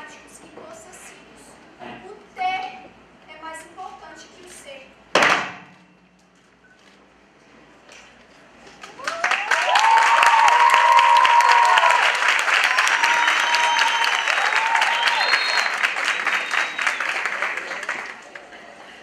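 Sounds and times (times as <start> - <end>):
audience clapping: 8.7 - 19.0
people cheering: 8.8 - 18.7
whistles from crowd: 12.8 - 17.5.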